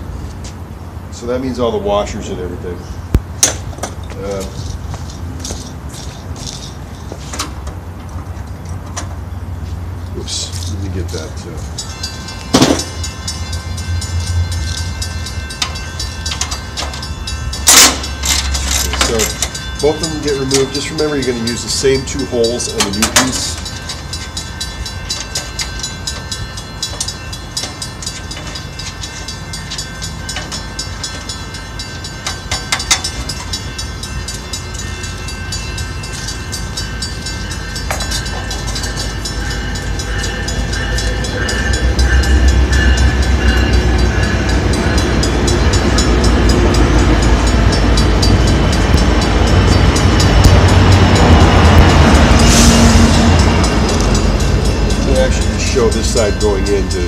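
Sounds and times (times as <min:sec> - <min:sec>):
heavy vehicle rumble: 0:00.0 - 0:57.0
held high tones: 0:11.6 - 0:57.0.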